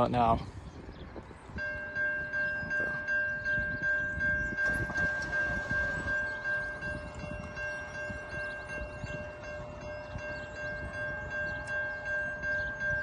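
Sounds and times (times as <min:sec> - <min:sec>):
electronic crossing bell dinging: 0:01.6 - 0:13.0.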